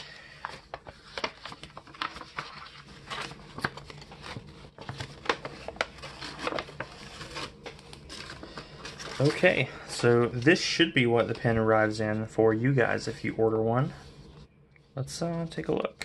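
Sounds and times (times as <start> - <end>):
paper and cardboard rustling: 0.0 - 12.2.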